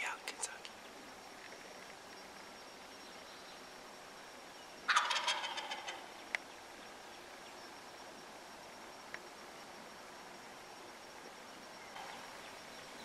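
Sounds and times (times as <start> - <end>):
turkey gobbling: 4.9 - 6.1.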